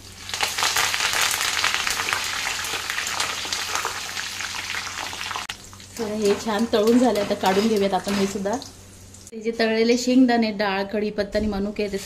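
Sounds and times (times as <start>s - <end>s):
food deep-frying in hot oil: 0.0s - 9.4s.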